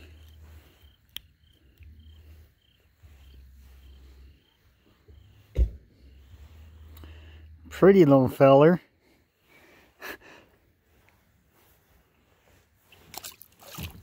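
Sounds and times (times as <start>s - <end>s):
low rumble: 0.0s - 7.8s
night insects chirping: 0.0s - 14.0s
loud thump: 5.5s - 6.0s.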